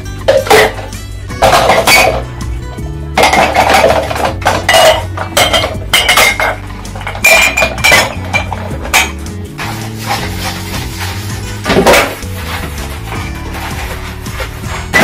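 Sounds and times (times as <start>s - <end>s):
soft background music: 0.0s - 15.0s
glasses clinking on dish rack: 3.2s - 9.2s.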